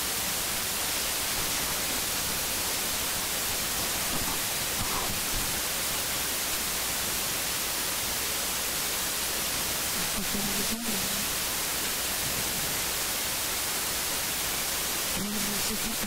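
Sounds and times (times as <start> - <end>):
static hiss: 0.0 - 16.0.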